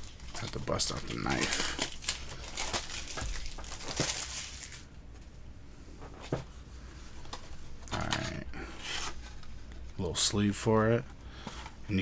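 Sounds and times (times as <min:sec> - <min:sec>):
shrink wrap crinkling and tearing: 0:00.0 - 0:04.9.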